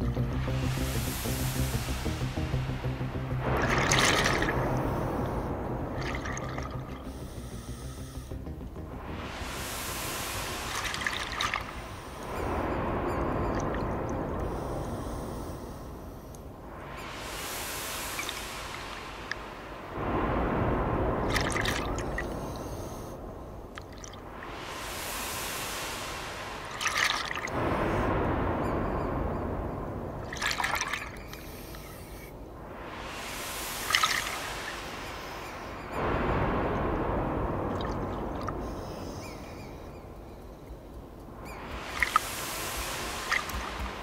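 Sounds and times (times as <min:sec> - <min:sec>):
exhaled bubbles rumbling: 0:00.0 - 0:34.9, 0:35.6 - 0:40.3, 0:41.2 - 0:44.0
regulator crackling hiss: 0:00.0 - 0:44.0
exhaled bubbles burbling: 0:03.1 - 0:07.5, 0:08.4 - 0:12.5, 0:21.2 - 0:22.4
regulator inhalation hiss: 0:06.9 - 0:08.4, 0:09.2 - 0:12.5, 0:14.3 - 0:19.9, 0:24.4 - 0:27.6, 0:31.2 - 0:36.0, 0:41.5 - 0:44.0.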